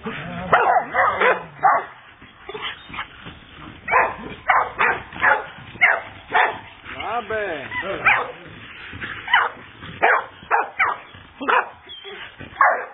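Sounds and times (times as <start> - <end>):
dog yipping: 9.3 - 12.9.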